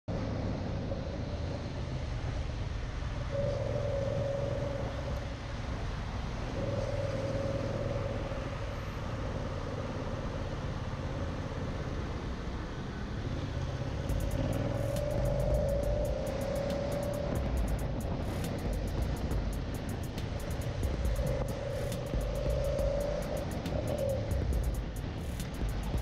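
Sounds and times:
wind and road noise: 0:00.0 - 0:26.0
motorcycle engine running: 0:06.4 - 0:12.0, 0:13.7 - 0:26.0.

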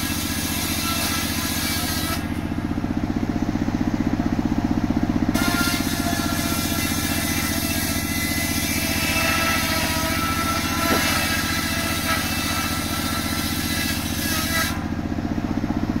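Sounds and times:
engine running low and pulsing: 0:00.0 - 0:16.0
circular saw blade ripping log: 0:00.1 - 0:02.5, 0:05.4 - 0:15.0.

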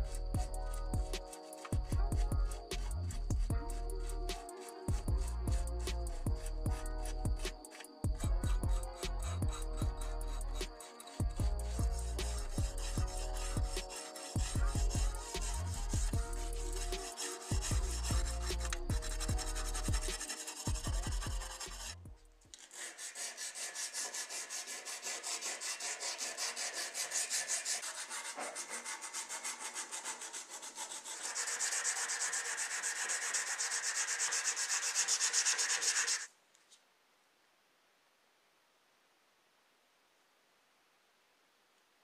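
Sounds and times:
music with heavy bass: 0:00.0 - 0:22.2
sanding pad rubbing on metal: 0:08.8 - 0:22.0, 0:22.6 - 0:36.3.

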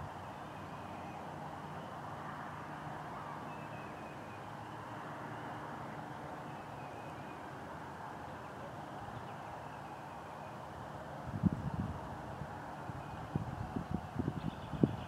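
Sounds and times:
faint high bird calls: 0:03.1 - 0:07.5.

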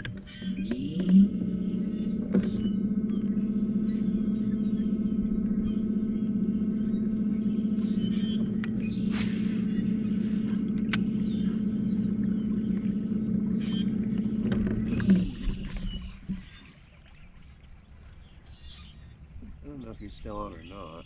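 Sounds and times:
electric trolling motor humming: 0:00.0 - 0:20.0
short clicks: 0:10.4 - 0:11.1.

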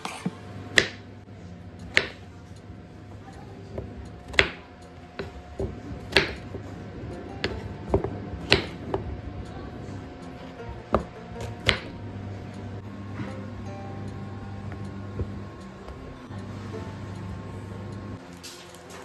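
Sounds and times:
knife chopping on wooden board: 0:00.7 - 0:01.0, 0:01.9 - 0:02.2, 0:03.8 - 0:06.7, 0:07.4 - 0:09.1, 0:10.9 - 0:12.0
soft background music: 0:00.8 - 0:19.0.

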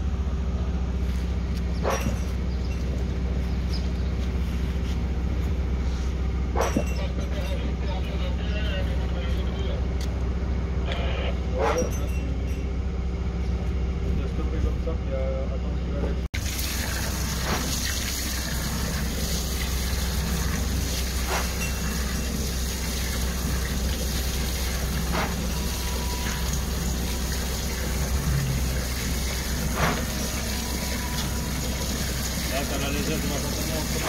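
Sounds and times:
low engine hum: 0:00.0 - 0:34.0
rushing water: 0:16.4 - 0:34.0.

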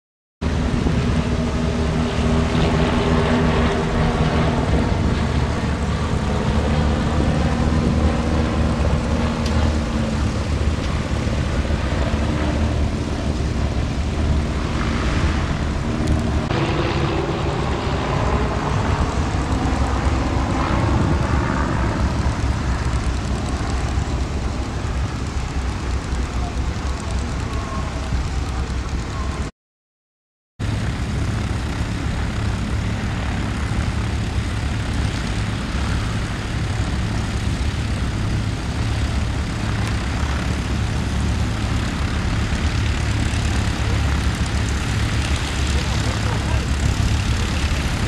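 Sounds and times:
propeller planes droning overhead: 0:00.4 - 0:29.5, 0:30.6 - 0:48.0.

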